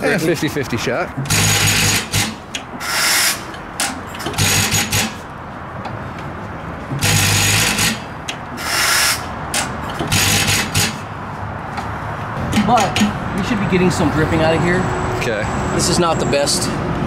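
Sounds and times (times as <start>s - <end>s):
engine turned over by hand: 1.2s - 5.2s, 6.9s - 11.0s.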